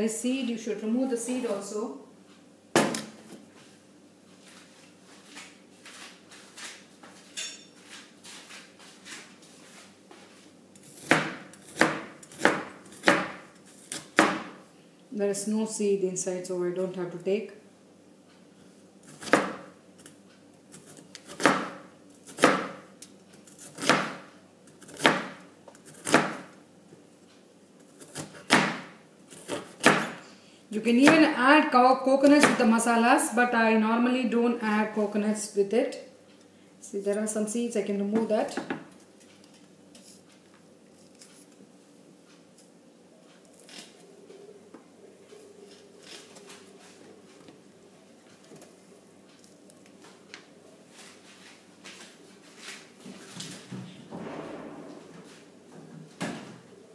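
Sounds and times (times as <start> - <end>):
knife cutting vegetable: 27.8 - 30.2.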